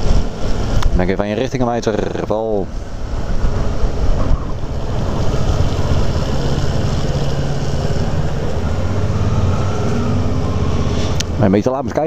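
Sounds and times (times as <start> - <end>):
wind noise on microphone: 0.0 - 8.5
motorcycle engine humming: 0.0 - 11.6.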